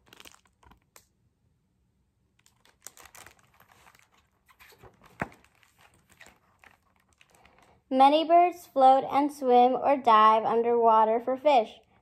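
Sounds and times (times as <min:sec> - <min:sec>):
paper pages rustling and turning: 0:00.0 - 0:01.0, 0:02.4 - 0:07.8.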